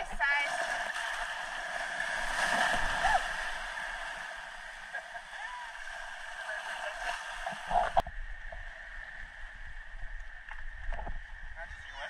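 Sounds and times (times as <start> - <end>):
surf splashing over rocks: 0.0 - 8.0.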